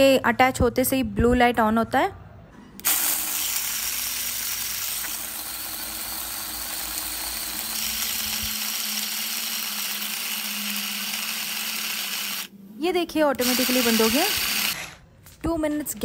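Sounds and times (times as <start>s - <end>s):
electric chopper chopping nuts: 2.8s - 12.5s, 13.4s - 15.0s.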